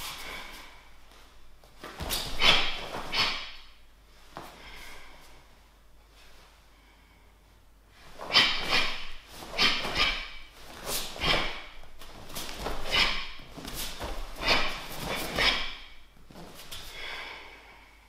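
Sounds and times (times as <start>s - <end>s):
sharp exhales through the nose: 2.1s - 3.8s, 8.1s - 11.8s, 12.4s - 16.1s.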